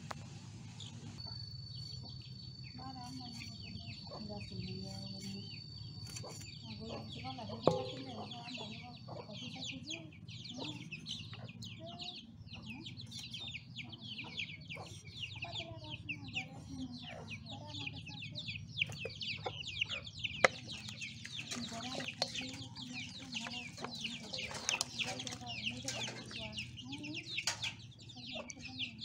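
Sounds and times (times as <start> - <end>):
chicks peeping: 0.7 - 29.0
chickens clucking: 6.0 - 29.0.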